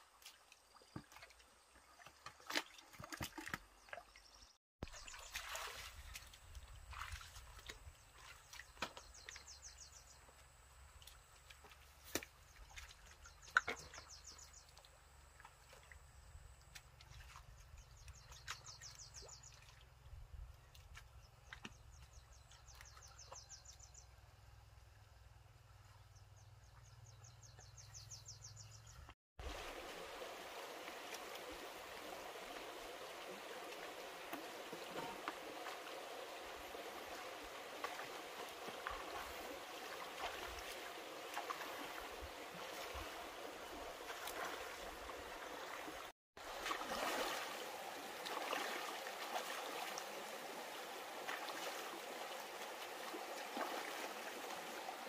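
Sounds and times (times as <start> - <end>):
stream running over stones: 0.0 - 23.8, 29.4 - 55.0
sharp splashes and knocks: 2.0 - 4.2, 4.8 - 9.6, 11.0 - 16.0, 33.4 - 50.2
wading through shallow mud: 4.8 - 24.1, 29.4 - 55.0.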